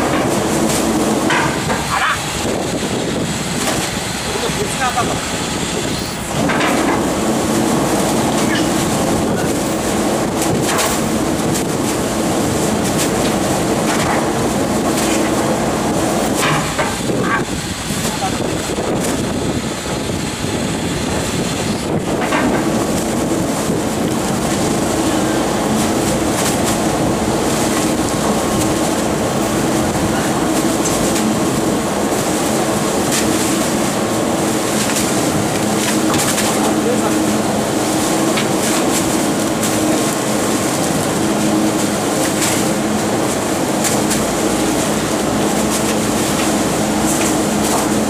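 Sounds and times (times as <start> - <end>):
garbage truck engine and hydraulics: 0.0 - 48.0
rotary plate hum: 0.0 - 48.0
refuse bags thumping: 24.2 - 48.0.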